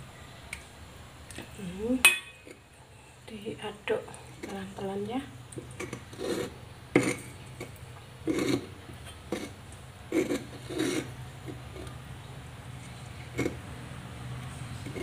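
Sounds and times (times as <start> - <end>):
pestle scraping in stone mortar: 4.3 - 12.0, 12.8 - 13.7, 14.6 - 15.0.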